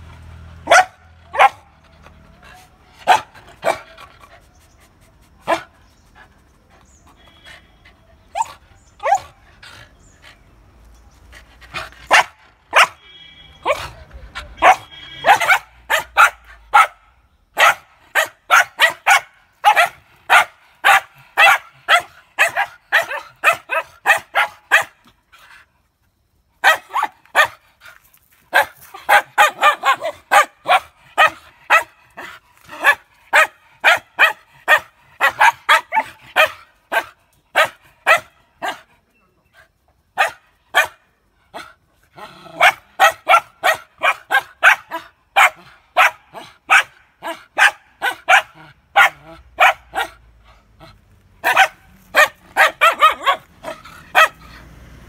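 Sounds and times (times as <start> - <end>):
small dogs yapping: 28.5 - 38.8, 40.2 - 50.2, 50.8 - 54.6.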